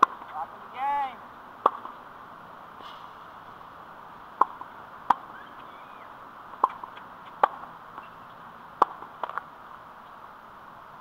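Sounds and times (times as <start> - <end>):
tennis balls striking court and racket: 0.0 - 2.2, 4.2 - 9.5.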